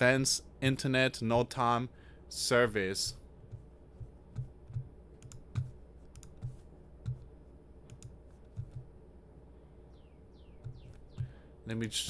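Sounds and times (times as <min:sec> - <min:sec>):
computer keyboard clicking: 0:05.2 - 0:06.5, 0:07.9 - 0:08.8.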